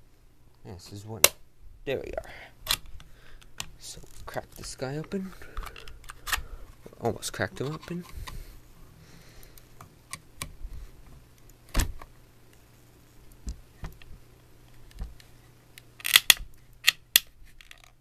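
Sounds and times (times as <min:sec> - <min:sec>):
plastic cracking and snapping: 0:14.7 - 0:18.0.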